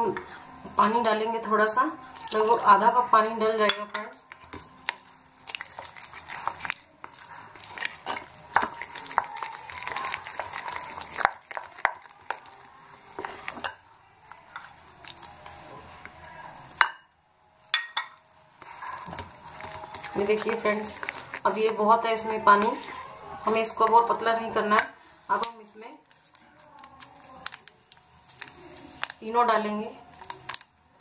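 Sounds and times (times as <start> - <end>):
spatula scraping glass bowl: 18.6 - 23.6.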